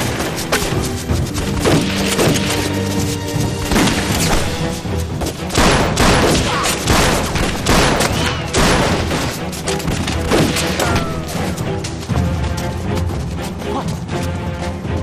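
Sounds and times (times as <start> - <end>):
dramatic orchestral music: 0.0 - 15.0
rifle gunfire: 5.6 - 9.1.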